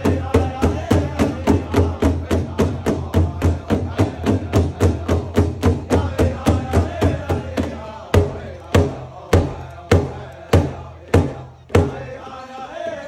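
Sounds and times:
large hand drum beating: 0.0 - 12.1
voices singing: 0.0 - 13.0.

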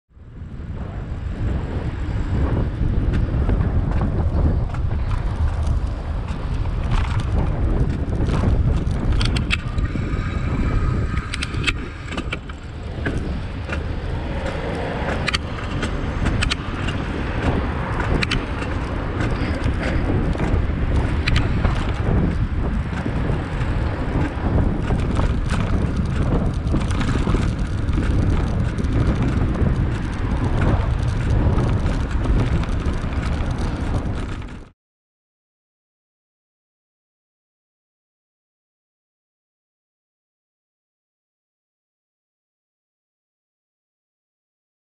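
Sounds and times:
road and traffic noise: 0.1 - 34.7
wind rumbling on microphone: 0.1 - 34.8.

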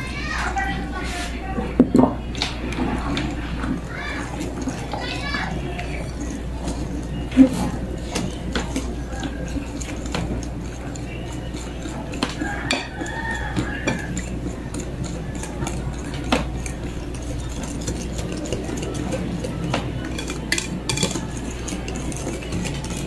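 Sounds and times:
whisk clicking against glass bowl: 7.8 - 23.0.

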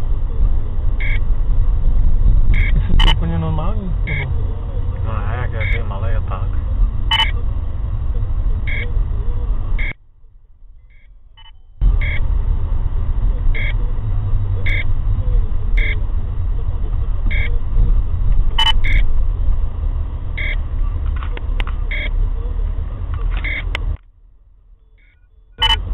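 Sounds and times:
car cabin rumble: 0.0 - 25.9
electronic alert beeps: 1.0 - 1.2, 2.5 - 4.4, 5.5 - 5.9, 7.1 - 7.4, 8.7 - 8.9, 10.8 - 12.2, 13.6 - 13.8, 14.6 - 14.8, 15.8 - 16.0, 17.3 - 17.5, 18.6 - 19.0, 21.9 - 22.1, 23.4 - 23.7, 24.8 - 25.9.

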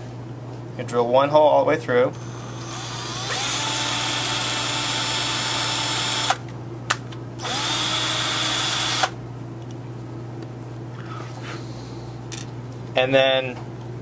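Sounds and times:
electric drill drilling: 2.2 - 6.4, 7.4 - 9.2.

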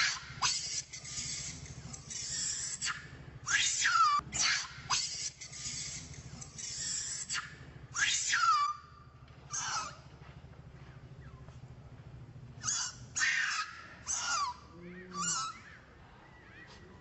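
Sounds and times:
baby monkey screaming: 0.0 - 10.0, 12.6 - 16.8.

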